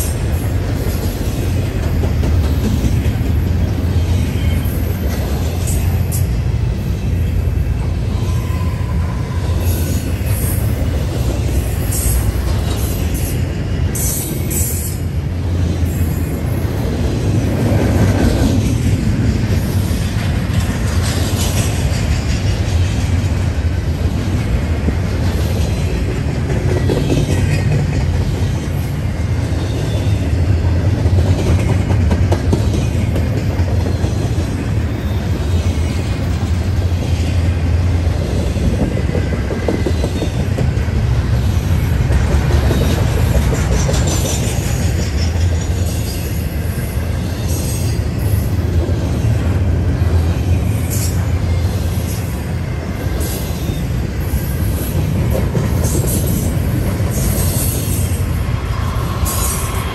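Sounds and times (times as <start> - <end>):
freight train wheels rumbling on rails: 0.0 - 59.9
high-pitched wheel squeals: 8.1 - 10.6.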